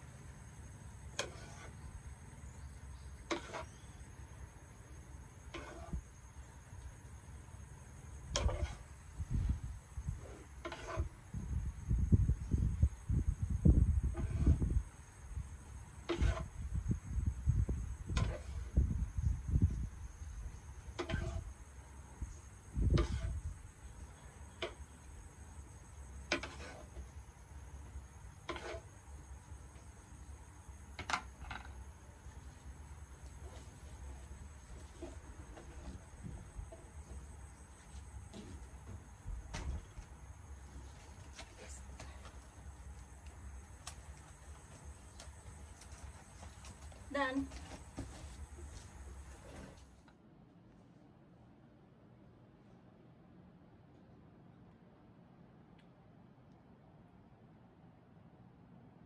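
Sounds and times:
paddle scraping sticky rice: 1.2 - 1.8, 10.2 - 11.2, 28.4 - 28.9.

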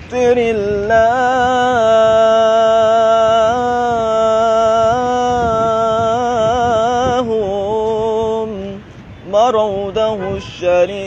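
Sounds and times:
man singing devotional chant: 0.0 - 11.0.

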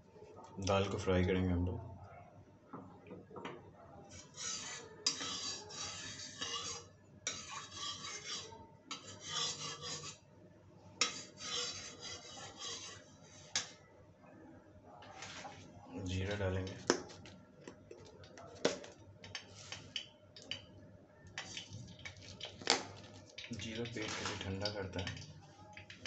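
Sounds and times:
metal spatula scraping a pan: 4.1 - 10.2, 11.0 - 13.8, 19.3 - 20.6, 21.4 - 22.5.

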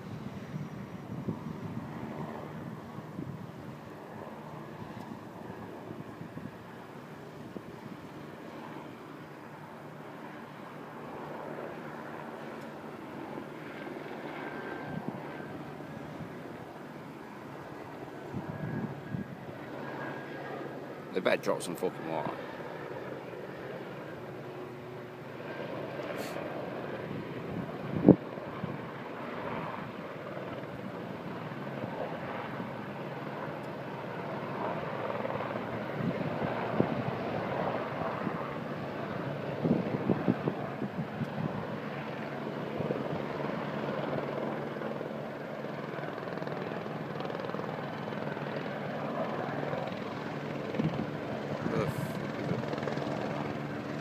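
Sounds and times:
helicopter rotor drone: 0.0 - 54.0.

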